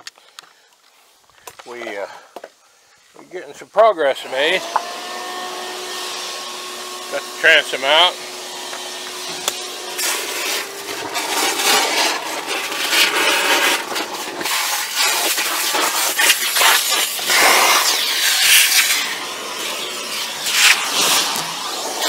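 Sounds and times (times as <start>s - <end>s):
wood debris scraping and crunching: 8.7s - 19.2s, 20.1s - 22.0s.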